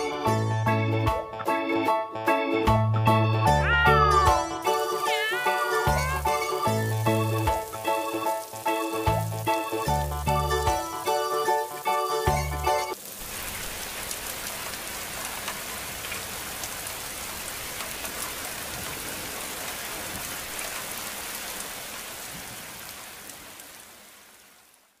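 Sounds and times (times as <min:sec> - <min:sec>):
steady rain hiss: 0:04.6 - 0:25.0
raindrop ticks: 0:05.9 - 0:23.8.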